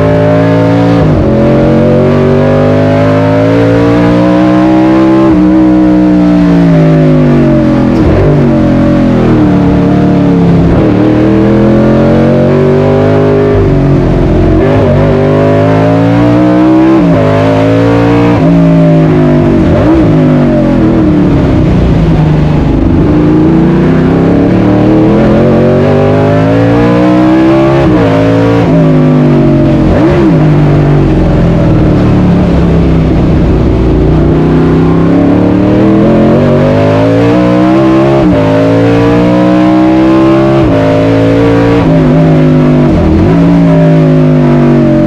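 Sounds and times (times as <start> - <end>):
race car engine revving hard: 0.0 - 45.0.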